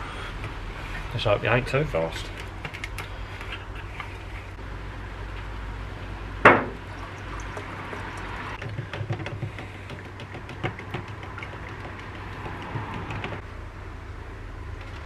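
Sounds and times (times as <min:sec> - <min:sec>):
liquid pouring into plastic cup: 0:06.8 - 0:12.7
stirring stick knocking in cup: 0:07.4 - 0:13.4.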